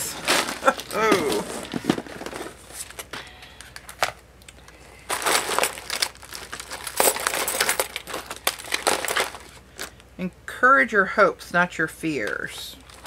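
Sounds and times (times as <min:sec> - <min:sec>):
plastic packaging crinkling: 0:00.0 - 0:10.0, 0:12.3 - 0:13.0
small pieces knocking together: 0:05.1 - 0:09.9.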